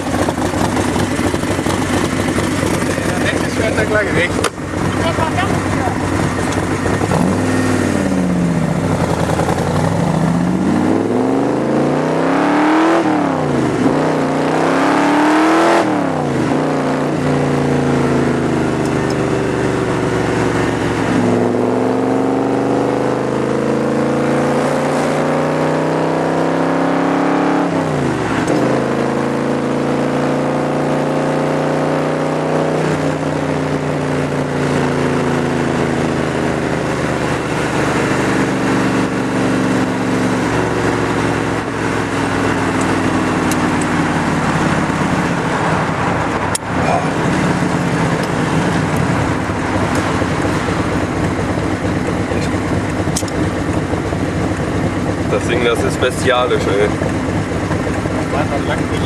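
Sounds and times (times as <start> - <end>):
car engine accelerating through gears: 0.0 - 59.0.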